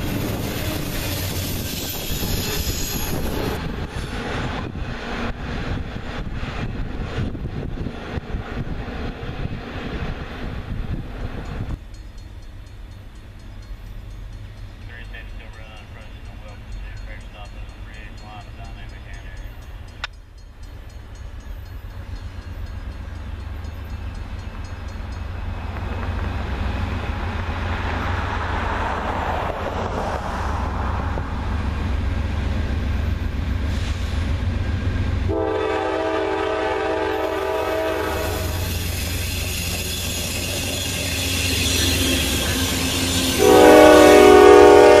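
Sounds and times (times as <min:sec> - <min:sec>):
locomotive engine and rail rumble: 0:00.0 - 0:45.0
train air horn blast: 0:35.3 - 0:38.9, 0:42.8 - 0:45.0.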